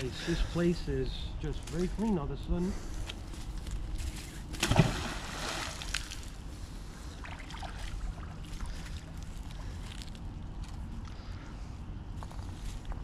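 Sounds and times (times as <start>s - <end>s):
magnet splashing into water: 4.6s - 6.3s.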